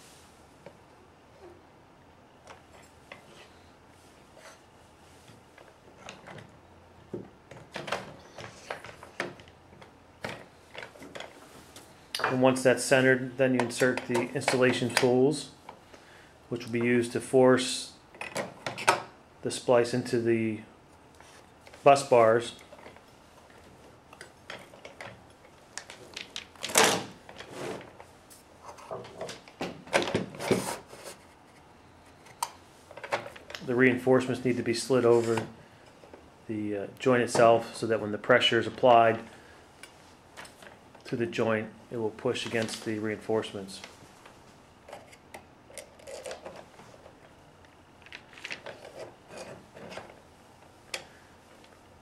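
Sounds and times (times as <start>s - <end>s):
metal parts clicking and knocking: 44.9s - 46.8s.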